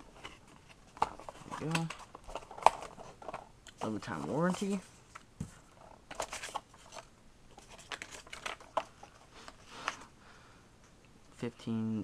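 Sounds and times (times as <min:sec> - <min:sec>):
paper and cardboard rustling: 0:00.0 - 0:10.1.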